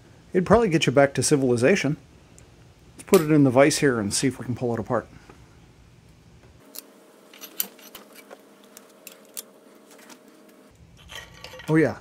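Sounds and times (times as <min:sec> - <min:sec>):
faint steady hum: 0:00.0 - 0:12.0
steel clicking and clinking: 0:11.0 - 0:12.0.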